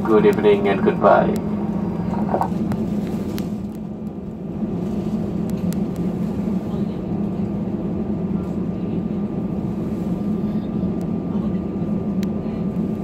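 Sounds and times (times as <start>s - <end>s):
aircraft cabin hum: 0.0s - 13.0s.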